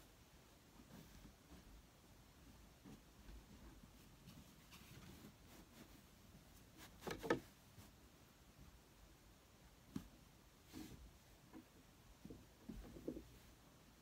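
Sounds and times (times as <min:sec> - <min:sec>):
comforter rustling: 0:00.5 - 0:08.3.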